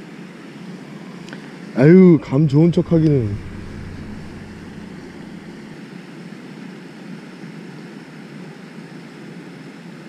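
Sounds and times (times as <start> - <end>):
low outdoor rumble: 1.8 - 5.8.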